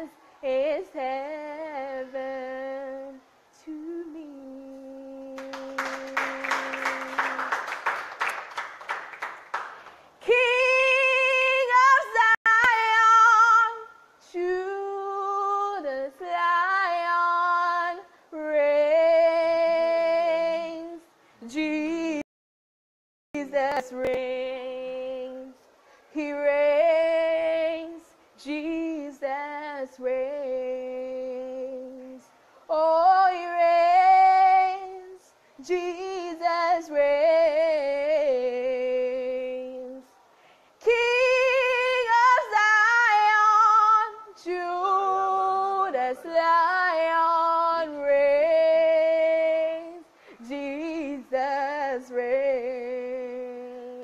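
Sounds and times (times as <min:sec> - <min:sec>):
woman singing unaccompanied: 0:00.0 - 0:07.9, 0:10.2 - 0:22.3, 0:23.4 - 0:40.2, 0:40.8 - 0:54.0.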